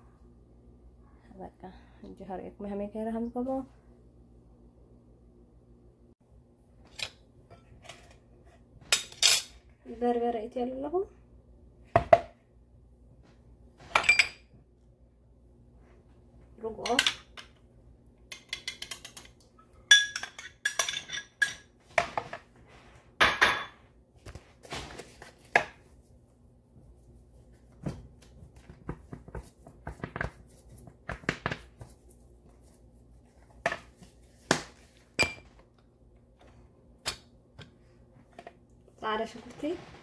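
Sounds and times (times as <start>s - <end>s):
bowls and utensils clinking: 19.9s - 21.7s.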